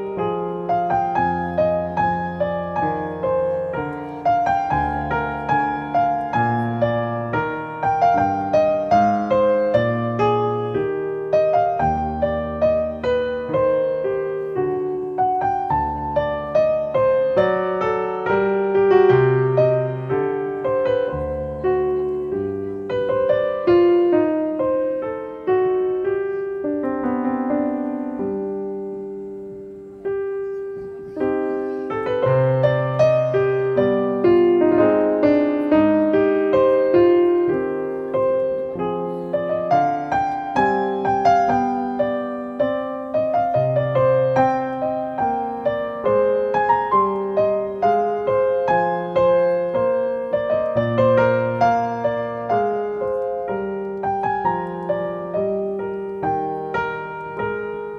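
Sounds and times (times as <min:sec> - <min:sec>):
solo piano music: 0:00.0 - 0:57.9.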